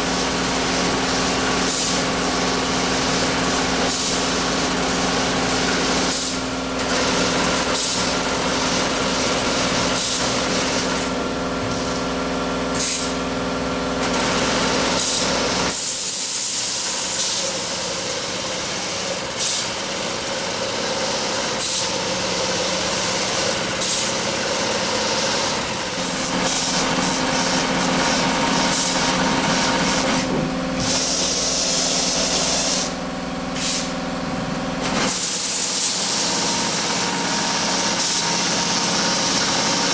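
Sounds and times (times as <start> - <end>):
motor hum: 25.7 - 39.9
short bursts of hiss: 33.6 - 34.0.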